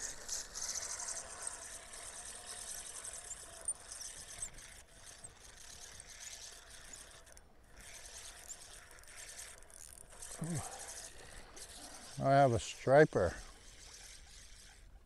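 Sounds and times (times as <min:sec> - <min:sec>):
fishing reel whirring and ticking: 0:00.0 - 0:15.0.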